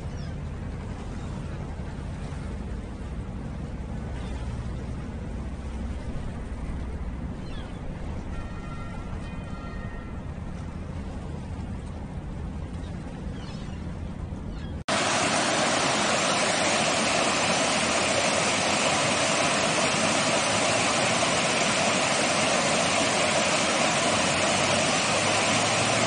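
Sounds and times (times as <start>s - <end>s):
low rumble: 0.0s - 25.5s
waterfall rushing over rocks: 14.9s - 26.0s.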